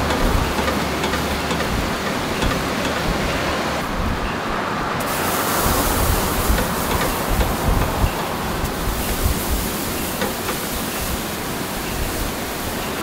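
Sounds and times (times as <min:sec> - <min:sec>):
charcoal fire rushing: 0:00.0 - 0:04.1, 0:04.9 - 0:13.0
fire crackles: 0:05.0 - 0:13.0.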